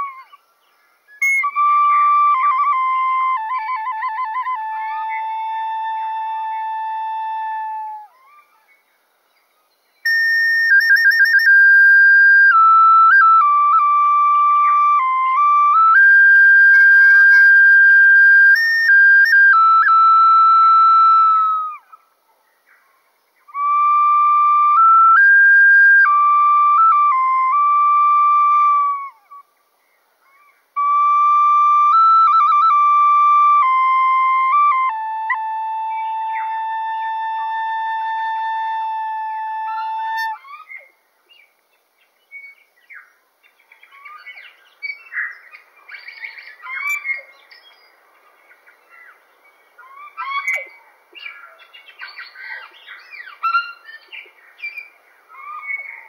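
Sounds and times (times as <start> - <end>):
whistled melody with trills: 1.2 - 8.2, 10.0 - 21.8, 23.5 - 29.4, 30.8 - 40.4
birds chirping: 14.4 - 20.0, 39.8 - 56.0.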